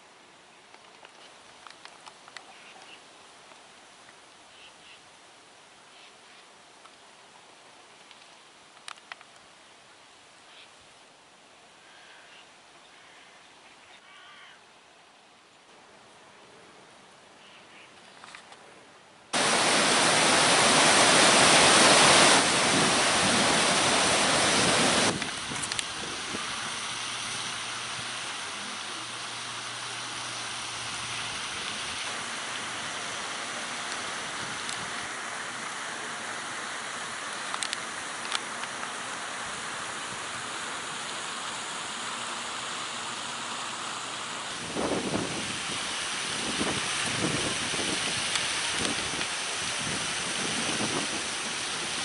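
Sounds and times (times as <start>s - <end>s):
fountain water splashing: 19.3s - 52.0s.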